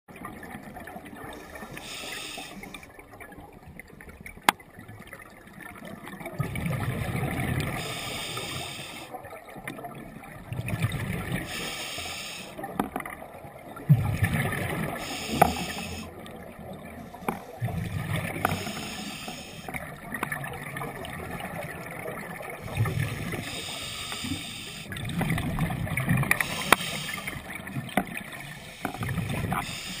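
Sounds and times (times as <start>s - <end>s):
scuba regulator hiss: 1.7s - 2.8s, 7.8s - 9.1s, 11.5s - 12.5s, 15.0s - 16.1s, 18.5s - 19.7s, 23.4s - 24.9s, 26.4s - 27.4s, 29.6s - 30.0s
exhaled bubbles burbling: 2.6s - 8.0s, 9.1s - 11.6s, 12.6s - 23.7s, 24.9s - 30.0s.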